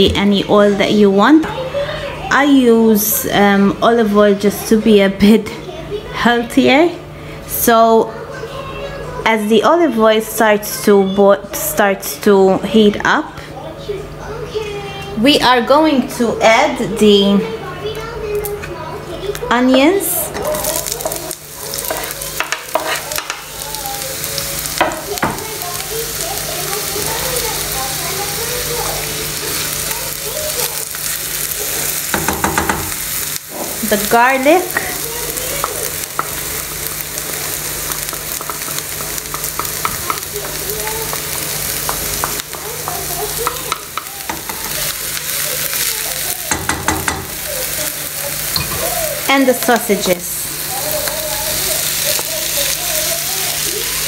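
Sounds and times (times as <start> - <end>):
onion sizzling in hot oil: 14.2 - 54.0.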